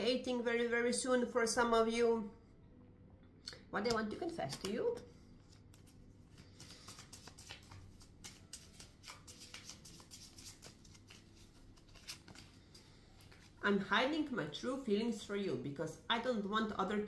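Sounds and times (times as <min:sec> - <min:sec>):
cards being shuffled: 0:03.9 - 0:04.8, 0:05.4 - 0:13.6.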